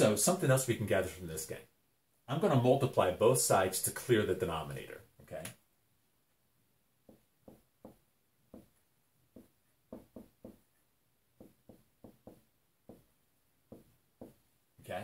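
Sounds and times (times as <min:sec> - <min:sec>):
marker writing on whiteboard: 0:07.0 - 0:14.6.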